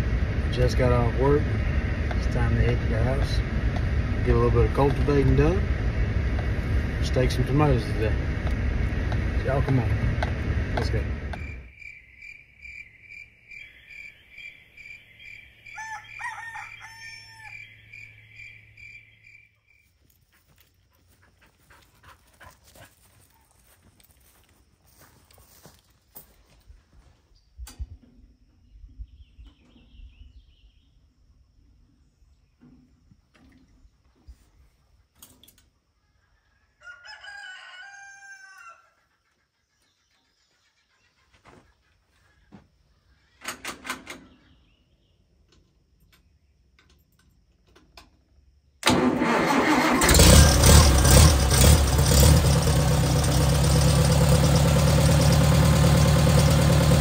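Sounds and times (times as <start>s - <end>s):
faint outdoor sound: 0.0s - 57.0s
high insect chirping: 11.4s - 20.6s
rooster crowing: 15.3s - 18.0s, 36.2s - 39.0s.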